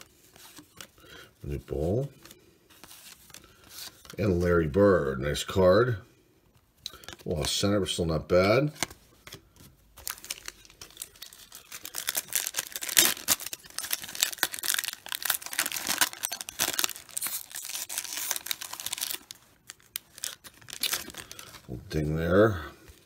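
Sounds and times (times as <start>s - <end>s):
wrapper ripping and crinkling: 10.0s - 21.7s.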